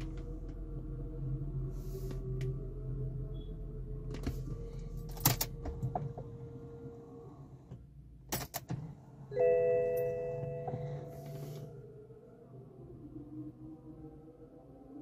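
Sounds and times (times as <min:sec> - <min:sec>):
steady low hum: 0:00.0 - 0:14.9
multi-tone warning chime: 0:09.3 - 0:11.6.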